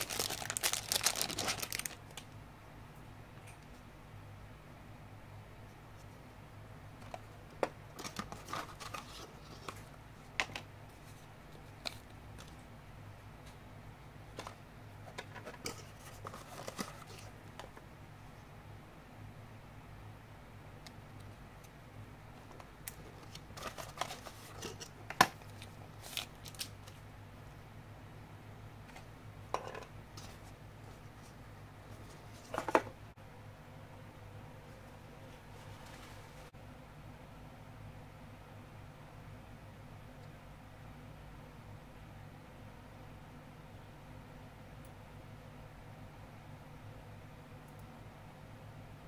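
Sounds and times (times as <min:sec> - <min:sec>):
low steady hum: 0:00.0 - 0:49.0
rustling: 0:35.2 - 0:36.5.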